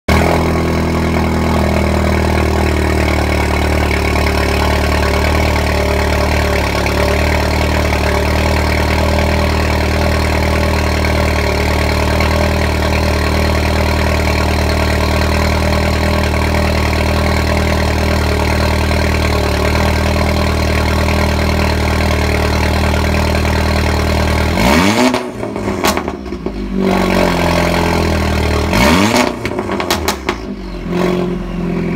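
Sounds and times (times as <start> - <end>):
car engine idling loudly: 0.1 - 31.9
car engine revving: 21.6 - 31.9.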